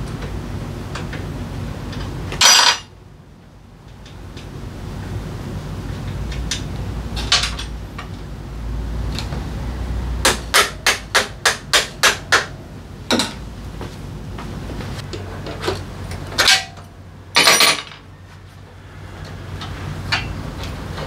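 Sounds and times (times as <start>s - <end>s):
metal tools clattering: 2.4s - 2.9s, 16.4s - 18.1s.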